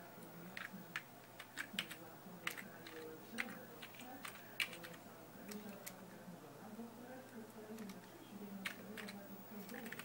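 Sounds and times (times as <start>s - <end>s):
keyboard typing clicks: 0.6s - 6.0s, 8.6s - 10.0s.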